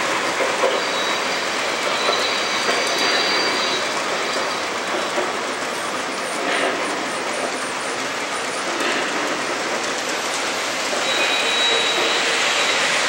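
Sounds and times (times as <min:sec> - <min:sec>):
model train cars rolling: 0:00.0 - 0:13.0
rail joint clicks: 0:00.0 - 0:13.0
wheels squealing: 0:00.6 - 0:05.3, 0:11.0 - 0:13.0.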